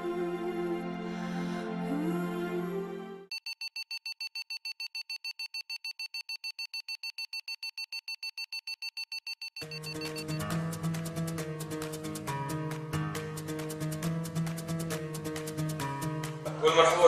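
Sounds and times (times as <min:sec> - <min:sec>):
soft ambient music: 0:00.0 - 0:03.3
rapid high alarm beeps: 0:03.3 - 0:10.6.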